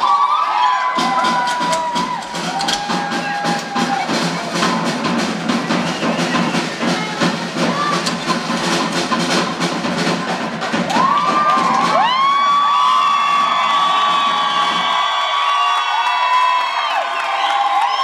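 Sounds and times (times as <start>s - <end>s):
audience whooping: 0.0s - 7.1s, 10.8s - 18.0s
drum kit playing: 0.9s - 14.7s.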